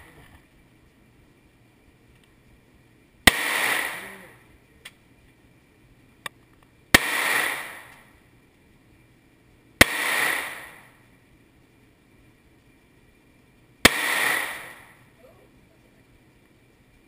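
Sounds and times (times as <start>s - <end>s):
faint clicks: 2.1s - 2.4s, 4.8s - 5.0s
gunshots with echoing tail: 3.3s - 4.4s, 6.9s - 8.1s, 9.8s - 11.0s, 13.8s - 15.0s.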